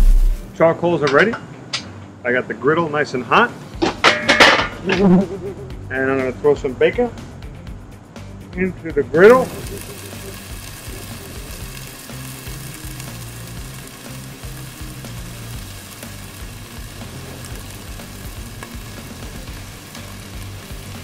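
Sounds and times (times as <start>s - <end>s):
bacon sizzling on a griddle: 9.4s - 21.0s.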